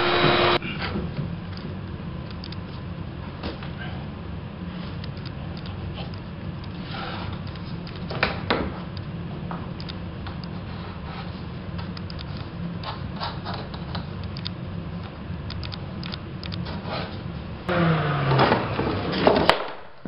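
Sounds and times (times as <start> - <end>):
low hum: 0.0 - 8.1
flooring rubbing and scraping: 6.8 - 7.8, 10.6 - 11.9.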